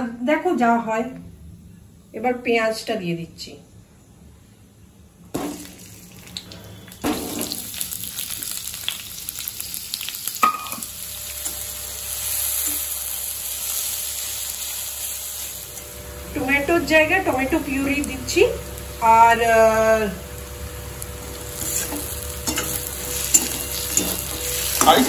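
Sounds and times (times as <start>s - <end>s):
onions sizzling in hot oil: 5.3s - 25.0s
spatula stirring against pan: 21.3s - 25.0s.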